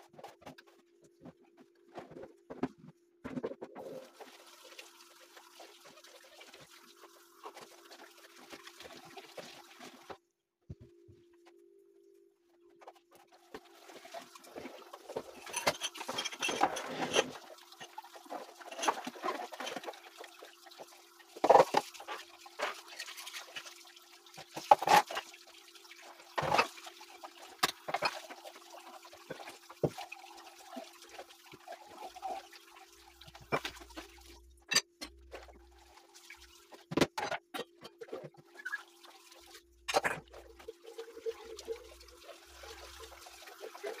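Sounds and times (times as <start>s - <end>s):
water running and splashing: 3.9s - 10.1s, 13.4s - 34.4s, 40.3s - 44.0s.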